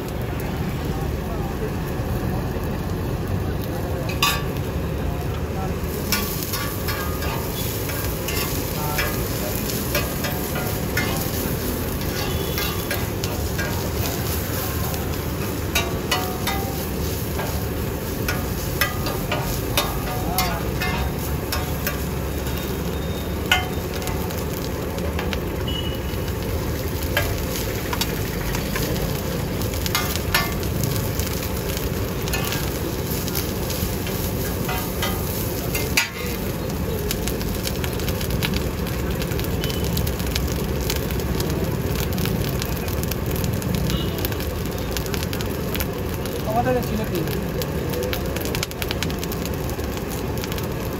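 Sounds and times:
rice sizzling in a pan: 0:00.0 - 0:50.9
metal spatula clinking on pan: 0:04.1 - 0:04.5.

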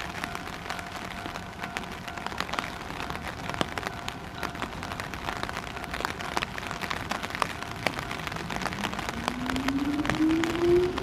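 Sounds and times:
raindrops clicking on surface: 0:00.0 - 0:11.0
electric train whine rising: 0:08.8 - 0:11.0.

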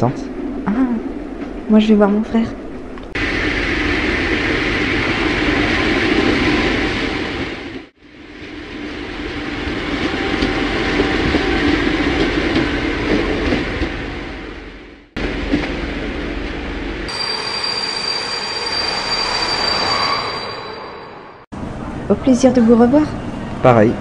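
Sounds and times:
passenger train passing: 0:00.0 - 0:24.0
train wheels squealing: 0:17.1 - 0:21.4.

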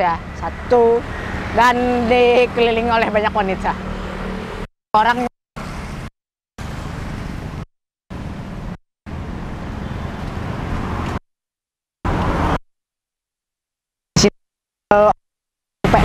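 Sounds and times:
motorbikes and cars passing: 0:00.0 - 0:04.7, 0:05.6 - 0:11.2, 0:12.1 - 0:12.6.

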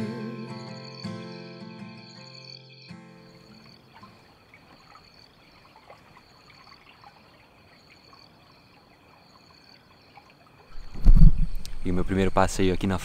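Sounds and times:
insects droning: 0:00.0 - 0:13.0
water trickling and dripping: 0:03.4 - 0:12.9.

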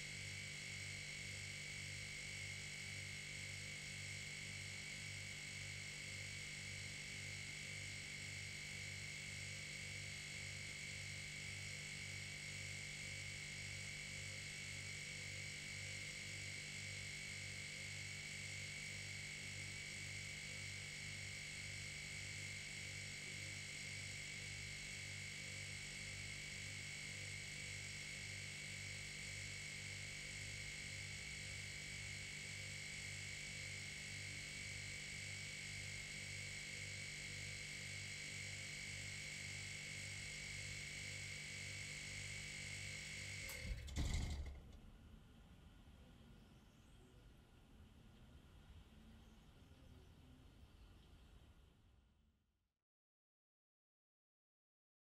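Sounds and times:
high-pitched compressor whine: 0:12.9 - 0:43.8
compressor switching off clunk: 0:43.4 - 0:44.8.

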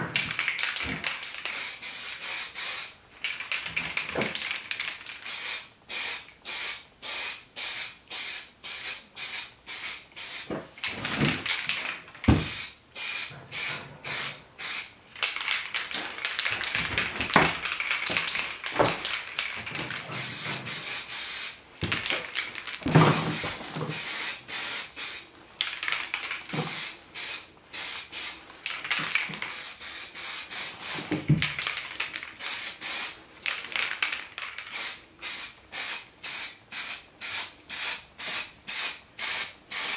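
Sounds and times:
aerosol can spraying in bursts: 0:01.4 - 0:03.0, 0:05.3 - 0:10.5, 0:12.4 - 0:15.0, 0:20.1 - 0:21.6, 0:23.1 - 0:25.2, 0:26.5 - 0:28.4, 0:29.1 - 0:31.2, 0:32.4 - 0:33.2, 0:34.7 - 0:39.9.

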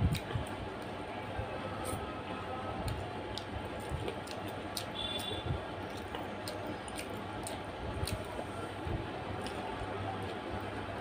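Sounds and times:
steady background noise: 0:00.0 - 0:11.0
mouth clicks and smacks chewing: 0:00.1 - 0:00.9, 0:02.8 - 0:08.4, 0:09.4 - 0:10.4.

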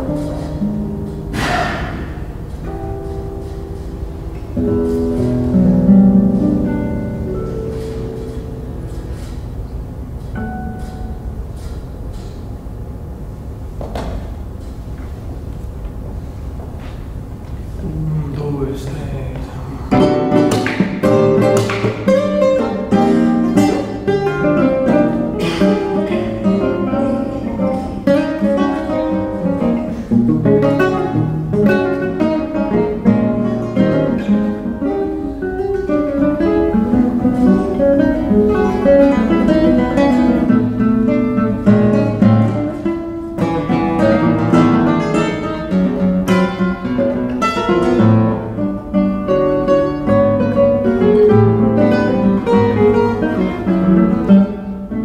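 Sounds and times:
classical guitar duet: 0:00.0 - 0:55.0.

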